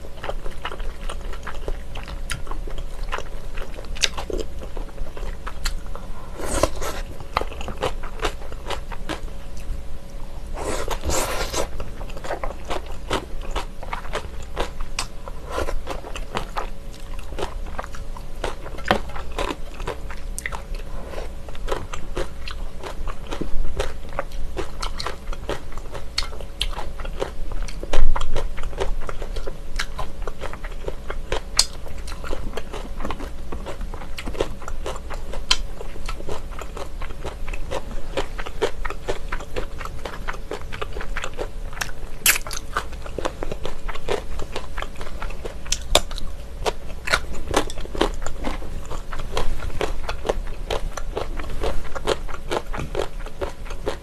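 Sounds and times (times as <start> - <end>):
chewing and mouth smacks: 21.7 - 54.0.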